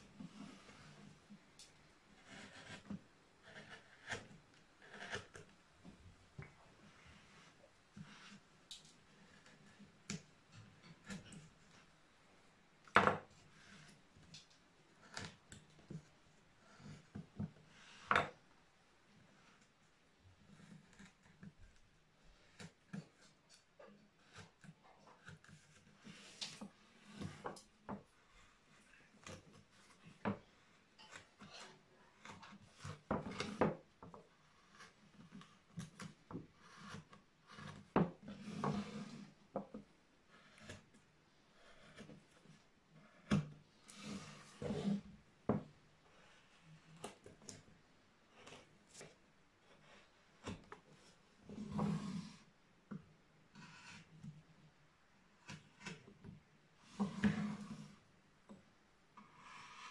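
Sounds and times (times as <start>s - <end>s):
knife cutting wood: 2.2s - 5.5s, 34.7s - 39.2s
chisel knocks and scrapes on wood: 2.2s - 8.4s, 29.2s - 41.0s, 41.7s - 45.8s, 49.8s - 54.1s, 55.4s - 58.6s
soft ticks of tools and chips: 28.7s - 33.0s.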